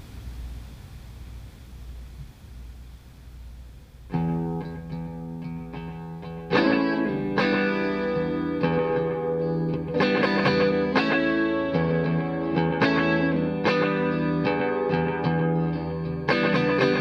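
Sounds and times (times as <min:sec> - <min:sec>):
electric guitar chords: 0:04.1 - 0:17.0.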